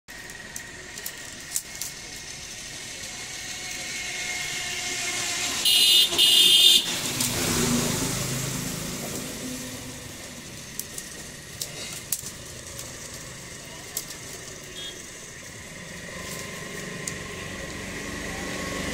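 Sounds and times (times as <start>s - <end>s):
bamboo strips clicking: 0.1s - 3.8s, 10.4s - 14.8s, 15.4s - 17.8s
motor vehicle passing: 0.6s - 18.9s
high-pitched horn blasts: 5.6s - 7.0s, 14.7s - 15.1s.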